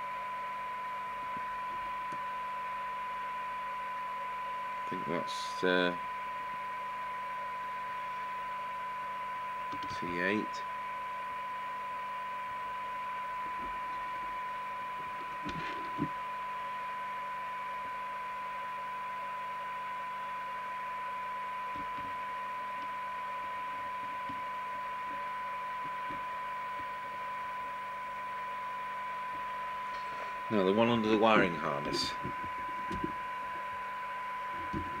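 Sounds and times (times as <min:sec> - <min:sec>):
steady radio test tone: 0:00.0 - 0:35.0
radio hiss: 0:04.8 - 0:06.6, 0:09.8 - 0:10.9, 0:12.7 - 0:17.0, 0:19.4 - 0:35.0.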